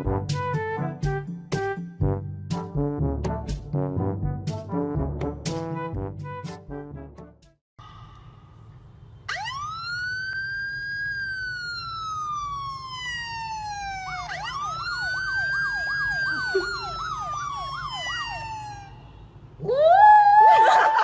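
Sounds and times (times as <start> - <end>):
siren wail from phone speaker: 9.3 - 19.1.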